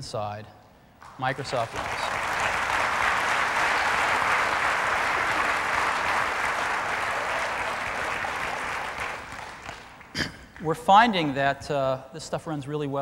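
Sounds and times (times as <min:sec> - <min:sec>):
audience applauding: 0:01.0 - 0:11.4.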